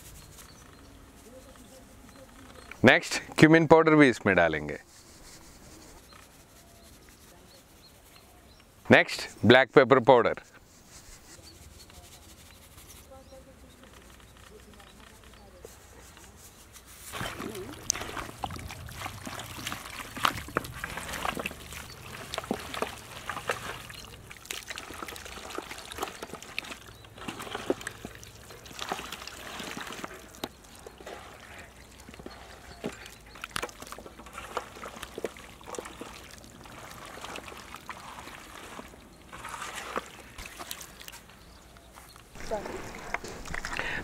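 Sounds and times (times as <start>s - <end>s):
wet squelching of chicken kneaded: 17.1s - 41.1s.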